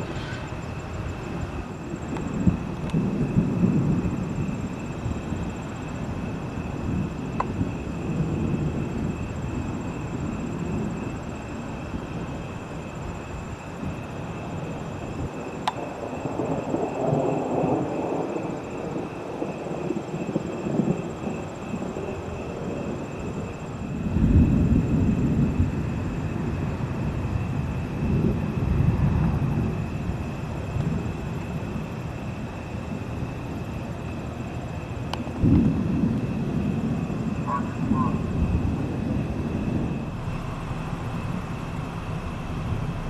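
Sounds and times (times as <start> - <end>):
distant thunder rumbling: 0.0 - 43.0.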